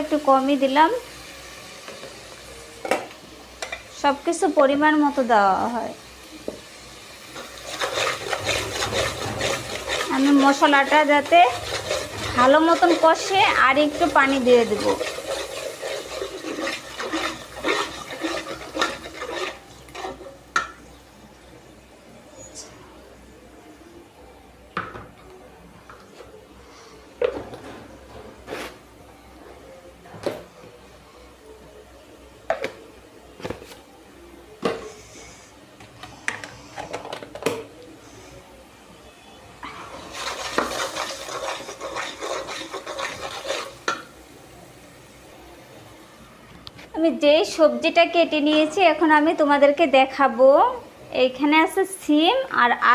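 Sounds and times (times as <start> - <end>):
metal spoon scraping a pot: 7.3 - 20.4, 39.9 - 44.0
water pouring: 39.9 - 43.7.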